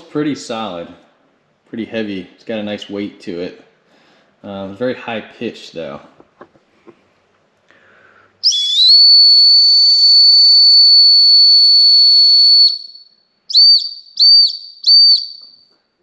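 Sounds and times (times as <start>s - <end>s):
high-pitched whistle blasts: 8.4s - 15.7s.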